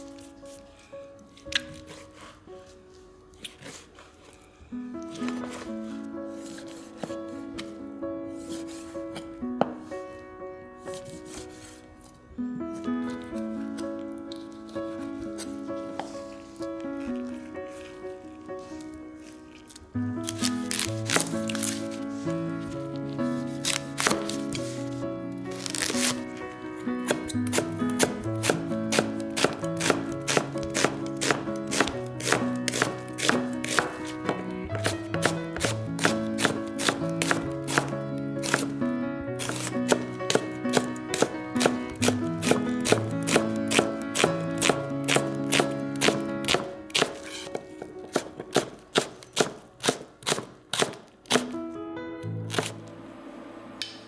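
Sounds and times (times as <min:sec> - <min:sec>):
soft background music: 0:00.0 - 0:54.0
knife chopping on cutting board: 0:27.0 - 0:38.7, 0:39.4 - 0:51.5.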